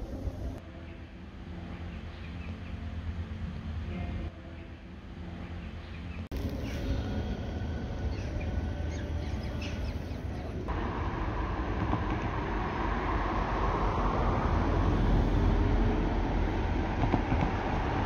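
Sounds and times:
low rumble and hiss: 0.0s - 18.0s.

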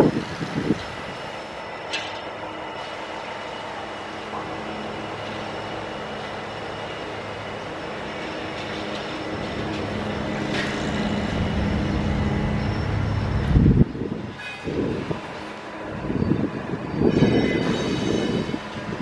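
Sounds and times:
wind buffeting microphone: 0.0s - 1.4s, 9.4s - 19.0s
diesel locomotive engine running: 0.0s - 19.0s.

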